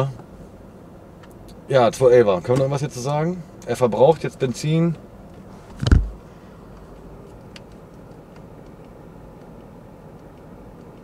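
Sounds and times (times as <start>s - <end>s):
car cabin engine and road rumble: 0.0s - 11.0s
short thump: 5.7s - 6.2s.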